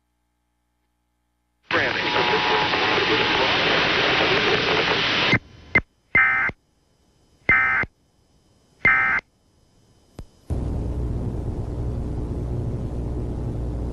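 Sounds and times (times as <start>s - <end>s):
steady hiss: 1.7s - 5.7s
digital data tone bursts: 1.7s - 6.6s, 7.4s - 9.3s
low hum: 6.8s - 13.9s
click: 10.1s - 10.4s.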